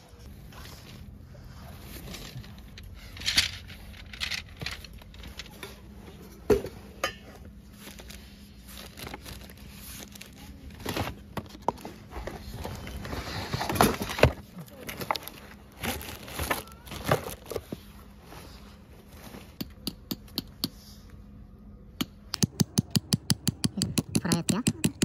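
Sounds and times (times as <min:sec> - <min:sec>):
fabric and plastic rustling: 0:00.2 - 0:19.6.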